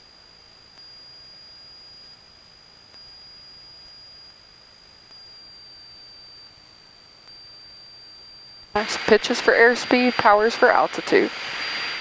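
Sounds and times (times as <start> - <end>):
high-pitched electronic whine: 0.0 - 12.0
intercom hiss: 8.7 - 12.0.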